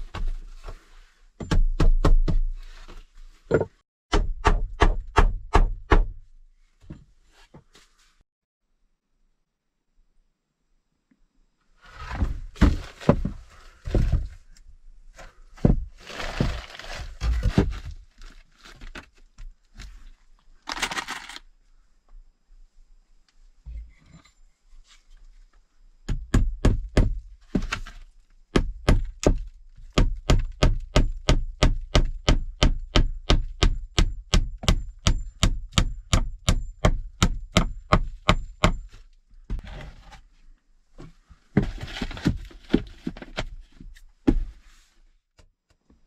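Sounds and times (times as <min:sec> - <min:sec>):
rustling: 0:11.8 - 0:21.5.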